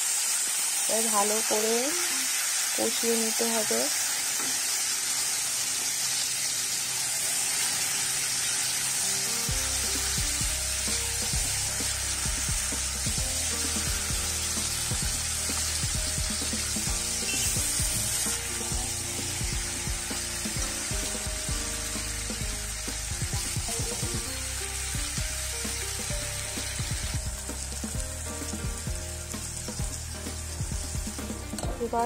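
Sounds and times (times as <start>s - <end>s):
food sizzling in oil: 0.0s - 32.0s
spatula scraping pan: 11.3s - 21.1s.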